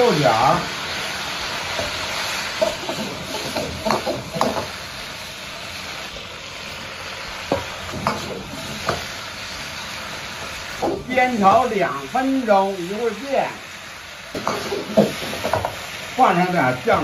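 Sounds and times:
green beans sizzling in oil: 0:00.0 - 0:17.0
metal ladle scraping wok: 0:00.8 - 0:11.6, 0:14.4 - 0:16.2.

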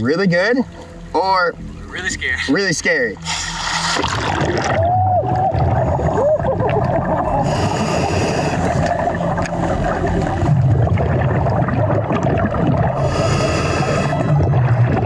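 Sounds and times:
muffled underwater rumble and bubbles: 0:00.0 - 0:15.0
scuba regulator breath hissing: 0:03.2 - 0:04.4, 0:07.4 - 0:08.8, 0:13.0 - 0:14.3.

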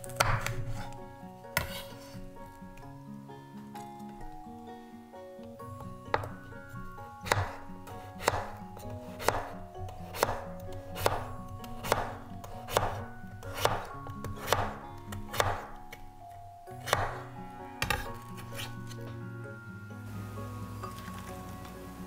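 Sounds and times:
knife slicing potato: 0:00.0 - 0:01.0, 0:01.6 - 0:02.2, 0:07.2 - 0:16.0, 0:16.8 - 0:17.2, 0:17.8 - 0:19.1.

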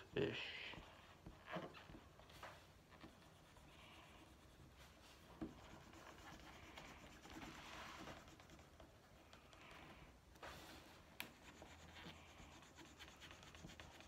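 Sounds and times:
markers scratching on paper: 0:02.9 - 0:09.6, 0:11.2 - 0:14.0.

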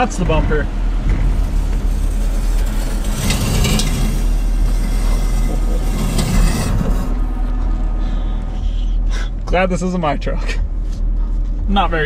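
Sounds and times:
metal bumper scraping on rock: 0:00.0 - 0:07.5
engine rumble: 0:00.0 - 0:12.0.

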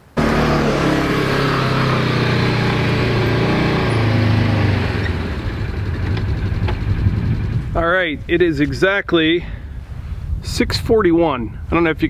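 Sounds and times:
utility vehicle engine running: 0:00.0 - 0:07.8.

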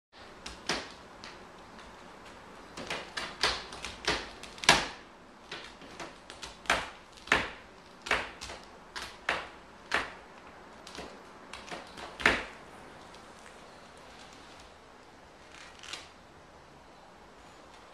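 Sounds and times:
cat scratching a post: 0:00.3 - 0:12.6.

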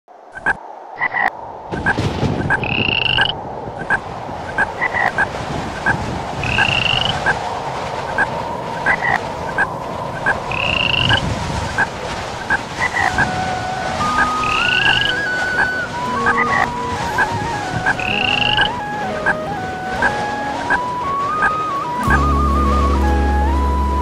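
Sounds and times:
frogs croaking: 0:00.3 - 0:07.4, 0:08.1 - 0:13.2, 0:14.2 - 0:17.3, 0:17.9 - 0:18.8.

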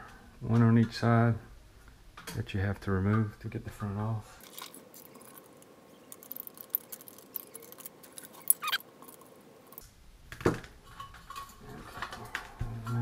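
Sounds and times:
short squeak: 0:07.4 - 0:08.8.

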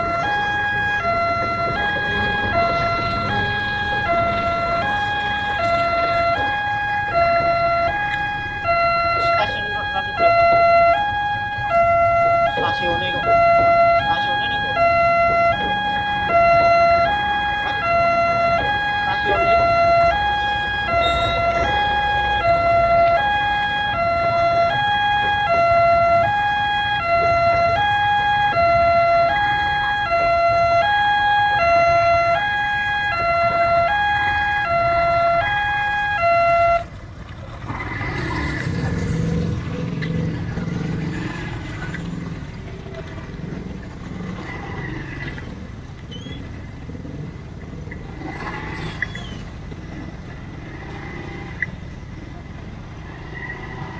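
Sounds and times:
motorcycle engines idling and pulling away: 0:00.0 - 0:53.9
level-crossing two-tone alarm chime: 0:20.8 - 0:23.2.

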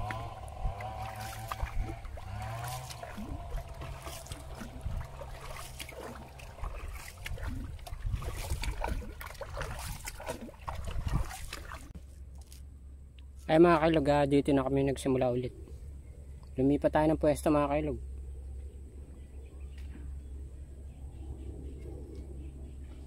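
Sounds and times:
paddle splashing in water: 0:00.0 - 0:12.0.

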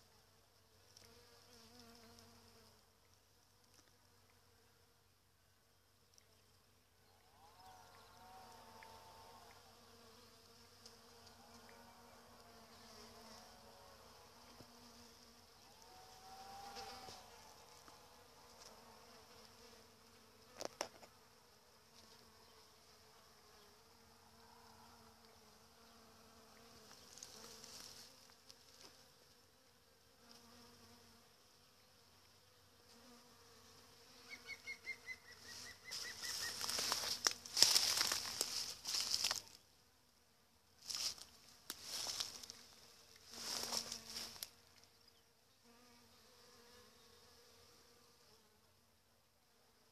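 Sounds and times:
bees buzzing: 0:07.3 - 0:29.1, 0:32.9 - 0:39.6, 0:41.9 - 0:44.7
rustling with ticks: 0:35.6 - 0:39.6.

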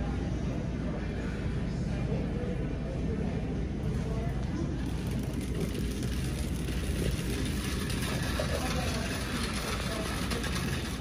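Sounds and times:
shopping cart rolling: 0:04.8 - 0:11.0.

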